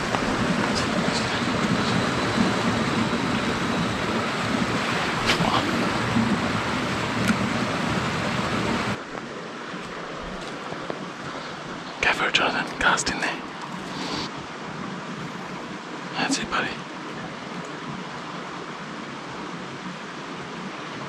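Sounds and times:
wind buffeting microphone: 0.0s - 9.0s.

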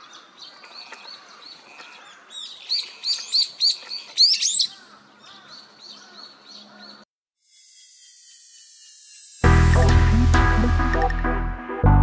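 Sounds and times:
songbirds chirping: 0.0s - 7.1s.

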